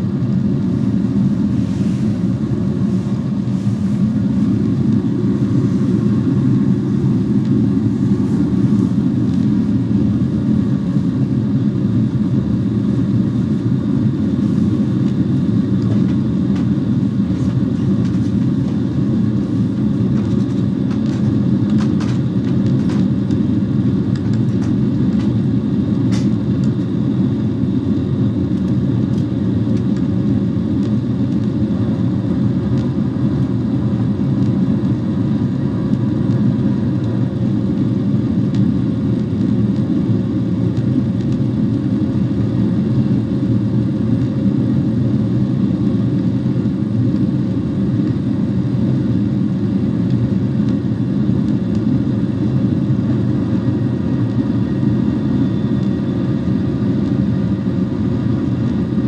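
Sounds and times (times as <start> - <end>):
rushing air: 0.0 - 10.6
faint steady hum: 0.0 - 59.0
jet engines roaring: 0.0 - 59.0.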